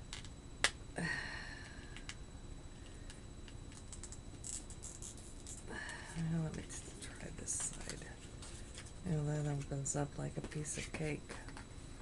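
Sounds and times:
faint crinkling and clicks: 0:02.8 - 0:05.7, 0:06.4 - 0:09.8.

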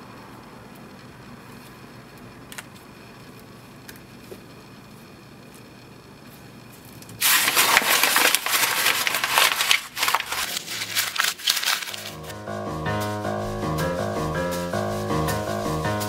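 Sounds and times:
paper being crumpled: 0:07.2 - 0:12.3
music: 0:11.6 - 0:16.0.

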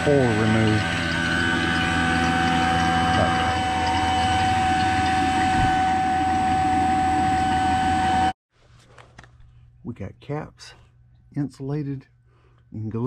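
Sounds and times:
vacuum pump motor humming: 0:00.0 - 0:08.4.

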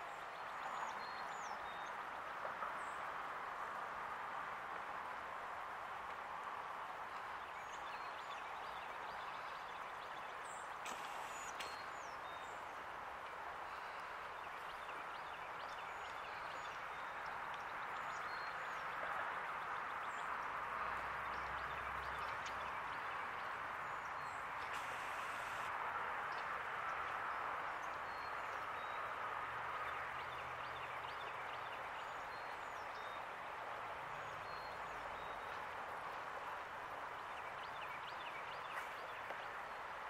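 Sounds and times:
small birds chirping: 0:21.3 - 0:25.7.

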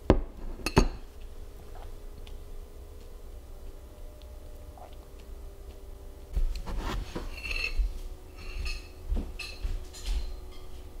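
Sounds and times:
metal spoon scraping glass bowl: 0:07.2 - 0:09.6.

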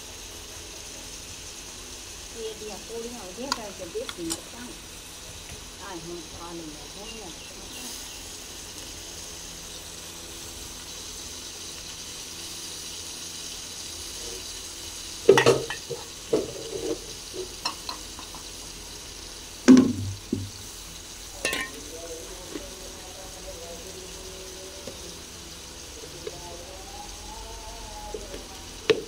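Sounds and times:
pot sizzling on stove: 0:00.0 - 0:29.0
metal ladle clinking on pots: 0:15.3 - 0:16.9, 0:17.6 - 0:18.4, 0:21.4 - 0:21.8.

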